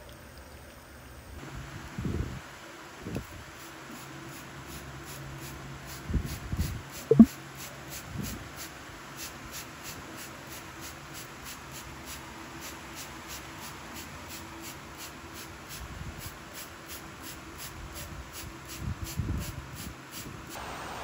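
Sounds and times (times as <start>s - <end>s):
spray bottle squirts: 7.0s - 7.3s.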